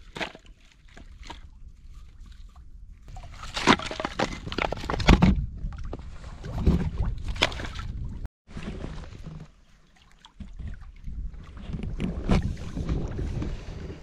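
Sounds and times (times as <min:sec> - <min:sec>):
firewood logs knocking together: 0:03.3 - 0:05.4
wind rumble on microphone: 0:04.2 - 0:08.3, 0:10.4 - 0:14.0.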